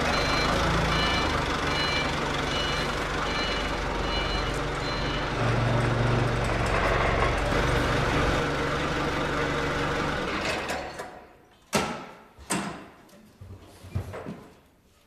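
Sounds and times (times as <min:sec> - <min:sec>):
forklift engine running: 0:00.0 - 0:11.0.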